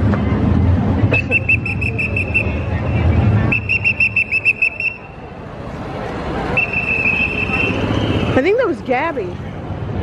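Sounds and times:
trilled whistle blasts: 1.1 - 2.7, 3.5 - 5.2, 6.5 - 8.4.

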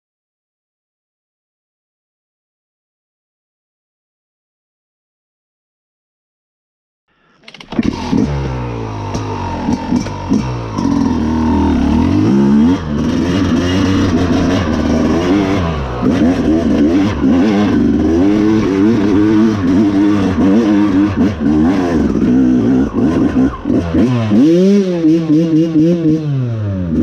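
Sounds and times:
dirt bike engine revving: 7.6 - 27.0.

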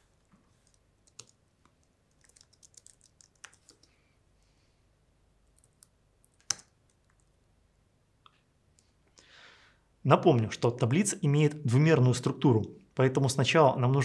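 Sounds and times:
typing on computer keyboard: 0.6 - 4.0.

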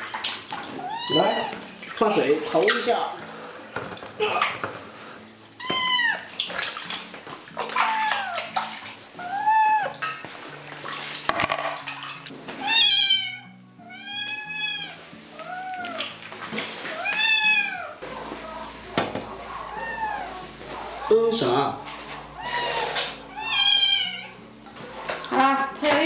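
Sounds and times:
kitten meowing: 0.8 - 1.6, 5.6 - 6.2, 9.2 - 10.0, 12.6 - 16.0, 17.0 - 18.0, 19.6 - 20.5, 22.4 - 24.4.

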